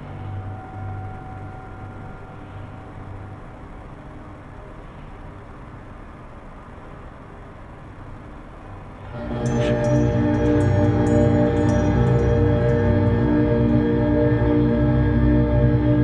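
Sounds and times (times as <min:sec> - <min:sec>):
eerie ambient music: 0:00.0 - 0:07.1, 0:08.2 - 0:16.0
low ambient drone: 0:00.0 - 0:16.0
high chime-like strokes: 0:09.2 - 0:15.6.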